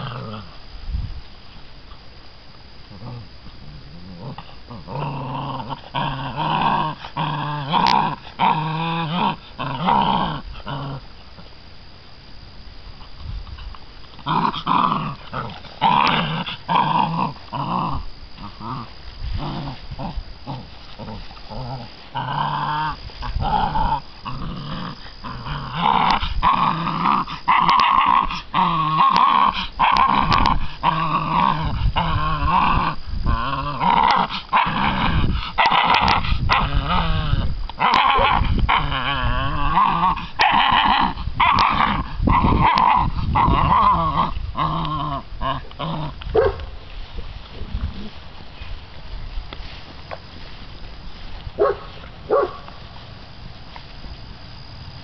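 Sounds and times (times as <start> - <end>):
puppies growling: 0.0 - 0.6, 2.8 - 11.2, 13.6 - 46.8.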